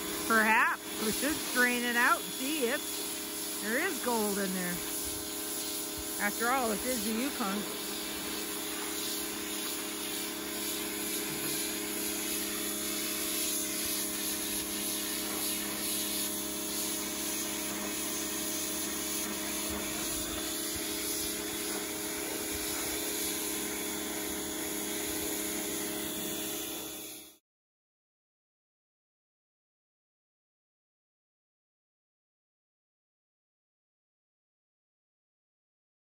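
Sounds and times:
pressure washer spraying: 0.0 - 27.4.

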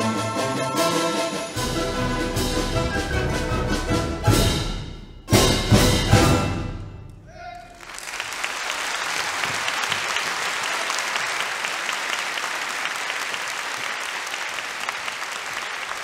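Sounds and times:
audience applause: 7.6 - 16.0.

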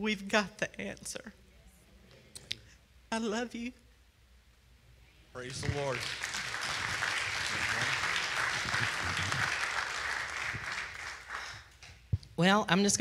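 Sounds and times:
congregation applauding: 5.4 - 11.9.

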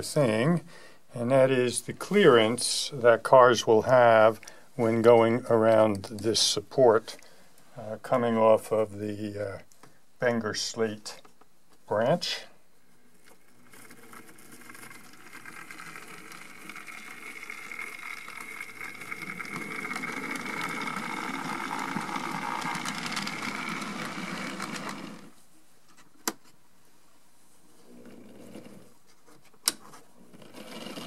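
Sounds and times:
model train motor whirring: 13.8 - 25.4.

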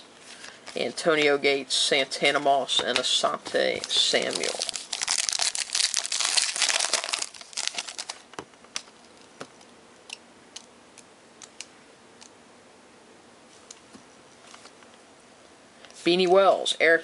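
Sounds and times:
foil wrapper crinkling: 2.9 - 9.3.

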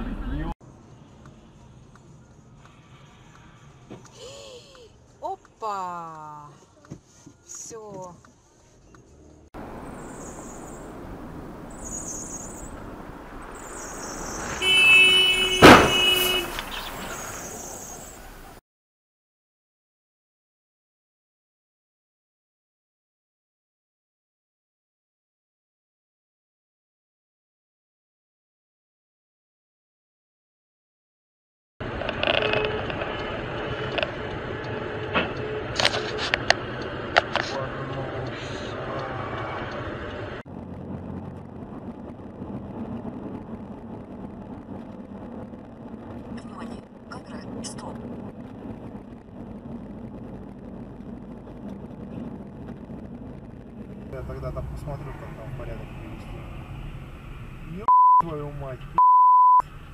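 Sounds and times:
car engine and road noise: 0.0 - 18.6, 31.8 - 59.9
car crash bang: 14.3 - 17.6
car horn: 14.5 - 17.1
low hum: 31.8 - 58.9.

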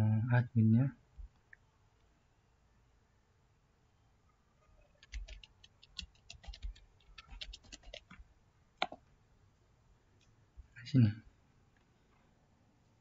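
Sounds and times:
keyboard typing: 5.0 - 8.2, 8.8 - 9.0.

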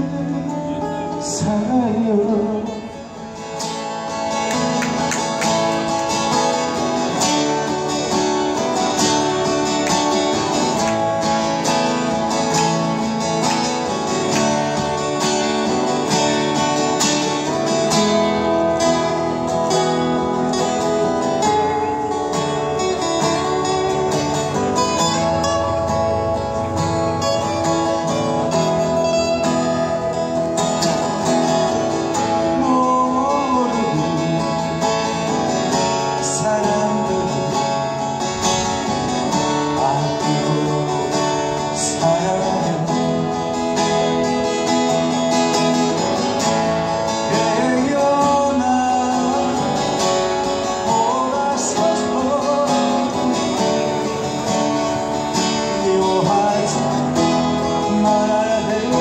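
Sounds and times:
man singing: 0.0 - 4.7, 31.9 - 43.8, 47.1 - 59.0
acoustic guitars playing: 0.0 - 59.0.

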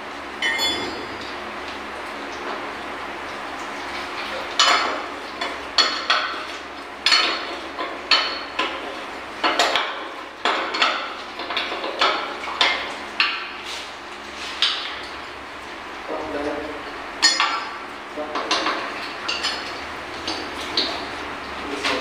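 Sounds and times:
metal tools clanking on steel pipe: 0.4 - 1.3.

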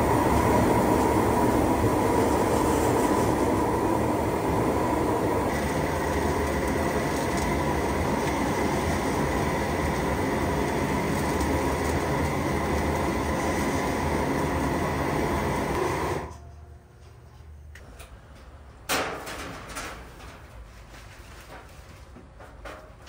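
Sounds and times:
roaster burner roaring: 0.0 - 16.6
faint motor whine: 0.0 - 18.5.

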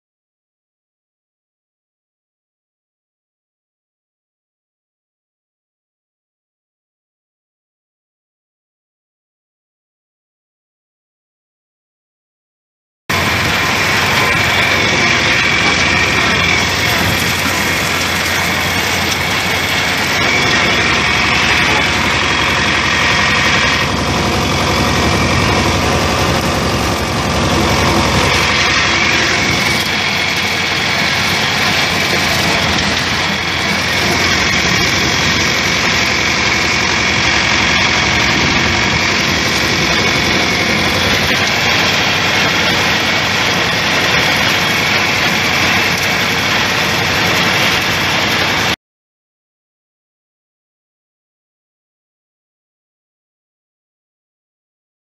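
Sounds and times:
tractor engine running: 13.1 - 48.8.

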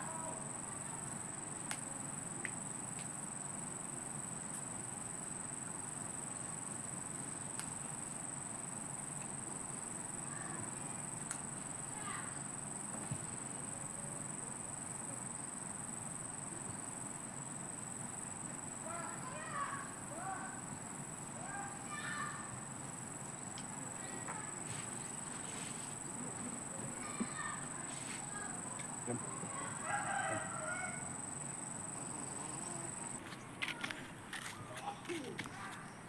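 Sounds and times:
insects droning: 0.0 - 36.0.

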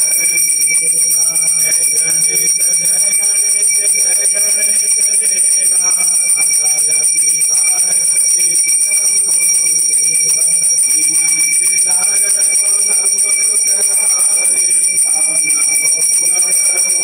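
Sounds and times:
hand bell ringing: 0.0 - 17.0
voices singing: 0.0 - 17.0.

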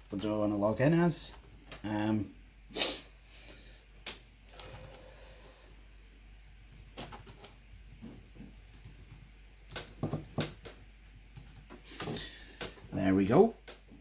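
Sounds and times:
laptop keyboard typing: 4.5 - 5.0, 6.6 - 11.8.

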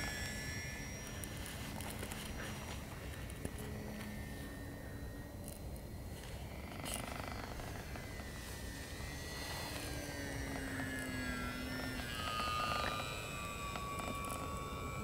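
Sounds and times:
model plane propeller whining: 0.0 - 15.0.

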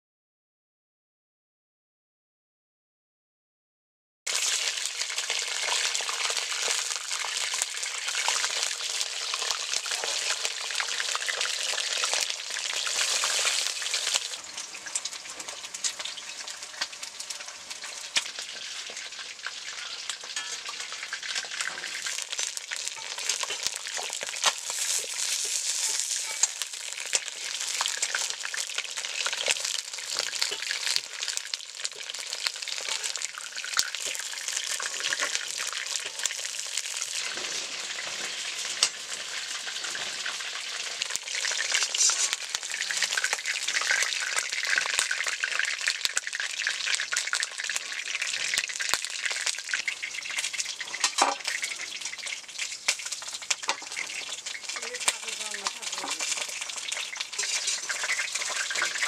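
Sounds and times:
chicken frying in hot oil: 4.3 - 59.0.

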